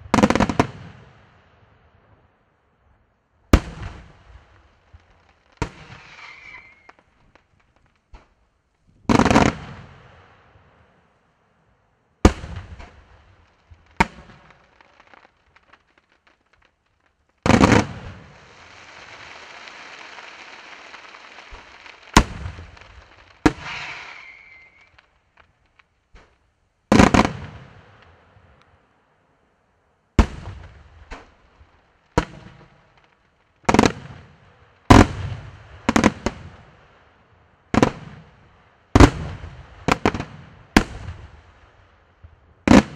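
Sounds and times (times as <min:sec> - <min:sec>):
firework shells bursting: 0:05.6 - 0:08.4, 0:14.0 - 0:26.4
steady hiss: 0:12.8 - 0:30.0.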